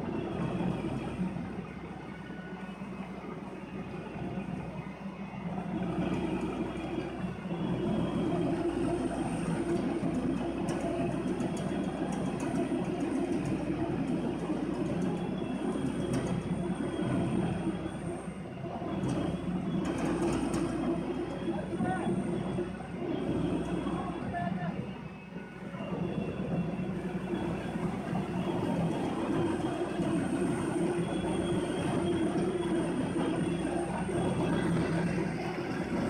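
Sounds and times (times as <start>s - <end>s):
shredder mechanical rumble: 25.6s - 36.0s.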